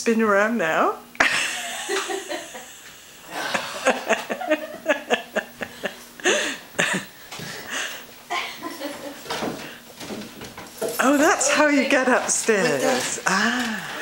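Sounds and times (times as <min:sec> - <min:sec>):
people laughing: 0:01.2 - 0:09.3.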